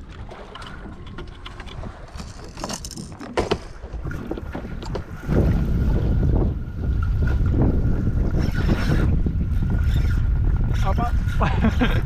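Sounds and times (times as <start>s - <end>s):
water splashing beside boat: 0.0s - 11.8s
wind buffeting microphone: 3.8s - 12.0s.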